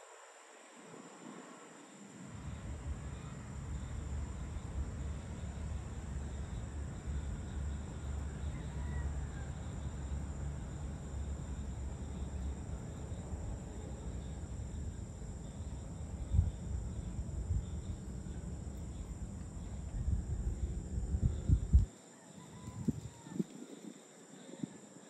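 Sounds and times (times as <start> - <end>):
insects buzzing: 0.0 - 25.0
low steady rumble: 2.2 - 21.9.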